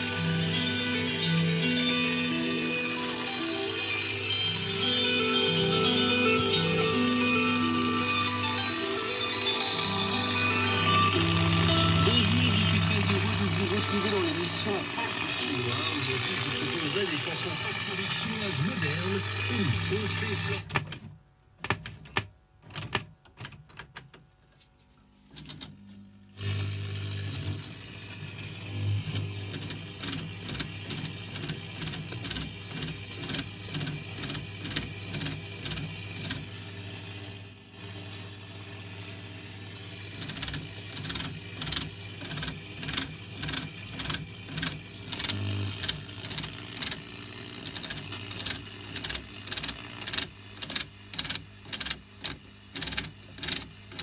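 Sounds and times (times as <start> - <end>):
tuning gear clicking: 40.2 - 54.0.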